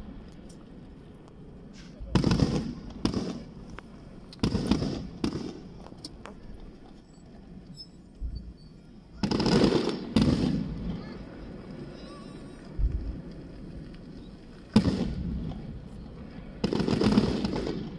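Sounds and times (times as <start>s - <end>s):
firework shells booming: 2.0s - 6.3s, 7.8s - 11.3s, 14.7s - 17.9s.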